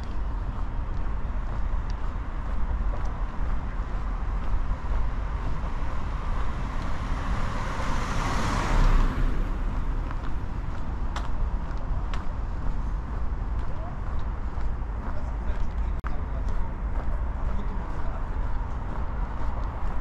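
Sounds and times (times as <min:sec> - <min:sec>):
low traffic rumble: 0:00.0 - 0:20.0
car passing by: 0:03.0 - 0:13.4.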